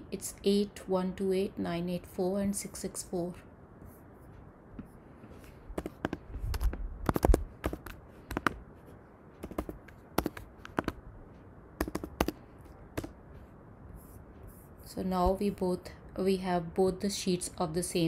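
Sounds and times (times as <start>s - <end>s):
keyboard typing: 5.7s - 8.6s, 9.4s - 11.0s, 11.8s - 13.2s
mouse clicks: 5.8s - 8.6s, 9.4s - 11.0s.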